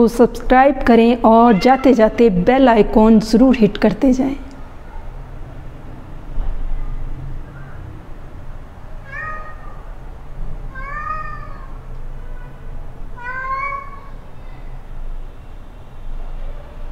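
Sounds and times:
cat meowing: 0:01.3 - 0:02.1, 0:09.0 - 0:09.9, 0:10.7 - 0:14.8.

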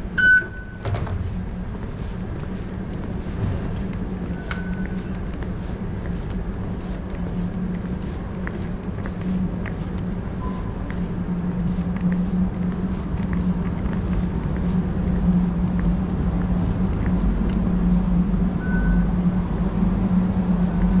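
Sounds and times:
low hum of station concourse: 0:00.0 - 0:21.0
footsteps on tiled floor: 0:01.2 - 0:18.4.

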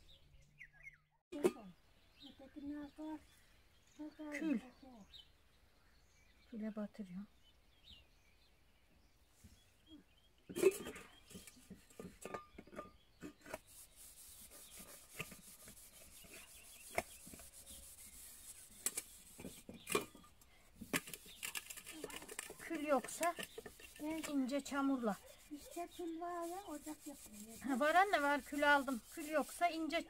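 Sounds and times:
scouring metal pot: 0:10.5 - 0:30.0.

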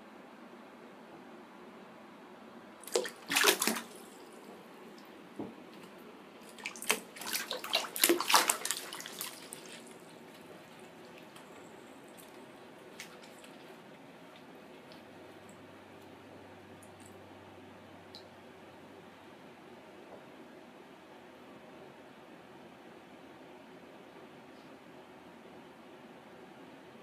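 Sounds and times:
lizard splashing in water: 0:02.8 - 0:04.5, 0:06.4 - 0:15.0.

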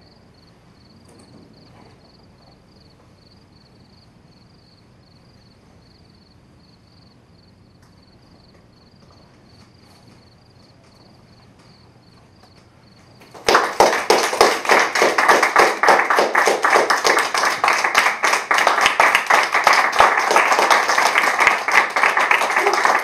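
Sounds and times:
audience applause: 0:13.2 - 0:23.0.

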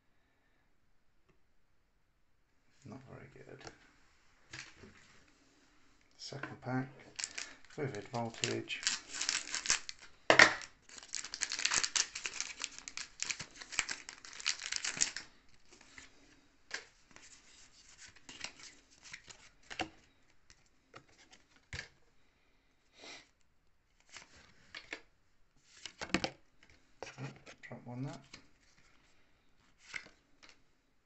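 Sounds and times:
trading cards rustling: 0:07.0 - 0:19.8
foil wrapper ripping: 0:07.1 - 0:15.3
foil wrapper crinkling: 0:07.1 - 0:15.4.

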